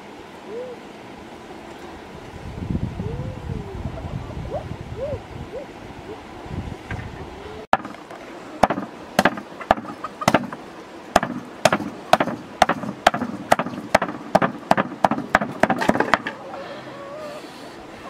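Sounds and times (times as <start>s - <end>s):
cleaver chopping on wooden block: 8.6s - 10.6s, 11.2s - 16.3s.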